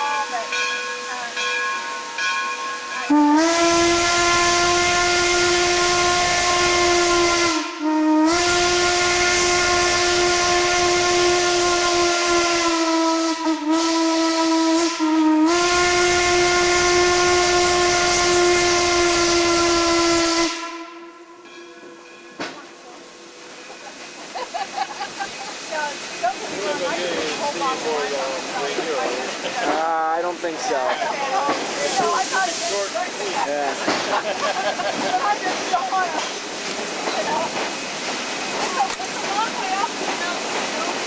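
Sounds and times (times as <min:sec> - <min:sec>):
steam hissing: 0:00.1 - 0:20.7, 0:22.6 - 0:41.0
steam whistle blasts: 0:03.1 - 0:21.6.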